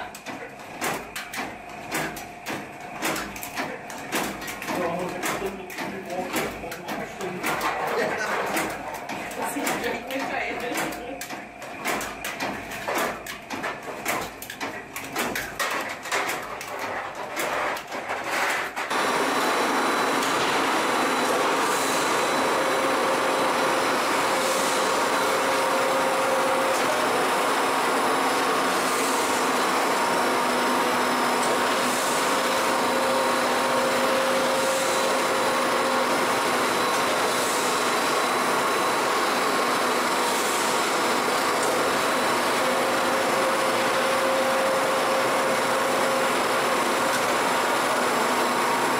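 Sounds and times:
egg-breaking machine clattering: 0.0 - 19.3
twisting machine mechanical noise: 0.0 - 48.9.

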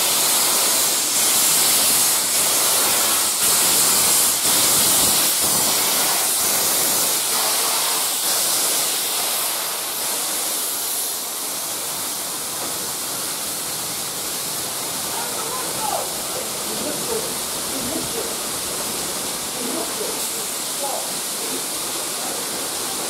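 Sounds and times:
steam locomotive hissing steam: 0.0 - 23.0
train carriages rolling by: 14.2 - 23.0.

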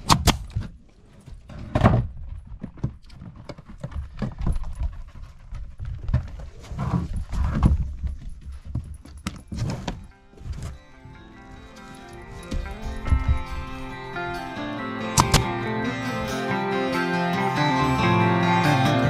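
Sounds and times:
nail gun shots: 0.0 - 0.6, 15.2 - 15.5.

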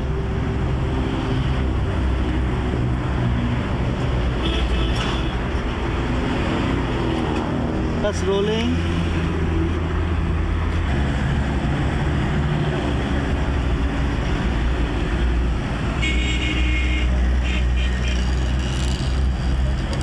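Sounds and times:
road traffic rumble: 0.0 - 20.0
vehicle horn: 4.4 - 5.4, 16.0 - 18.4.

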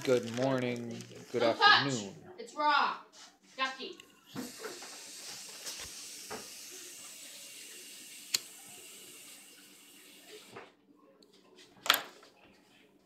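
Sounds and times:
water running from tap: 4.3 - 10.6.

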